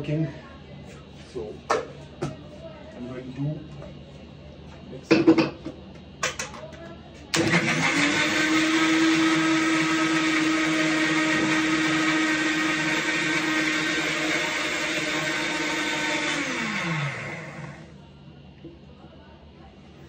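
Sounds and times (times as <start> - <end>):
electric blender running: 7.3 - 18.0
blender motor winding down: 7.4 - 17.9.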